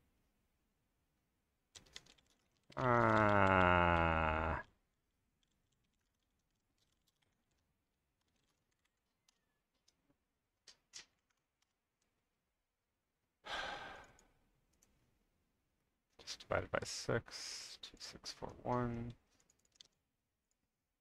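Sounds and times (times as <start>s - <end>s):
keyboard keystrokes: 1.8s - 3.6s
man sighing heavily: 2.8s - 4.6s, 13.4s - 14.3s.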